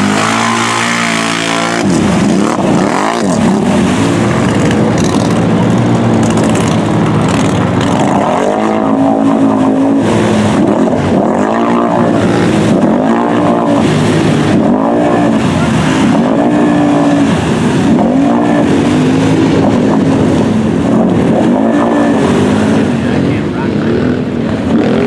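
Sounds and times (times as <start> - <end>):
atv engine revving: 0.0 - 25.0
tires churning through mud: 0.0 - 25.0.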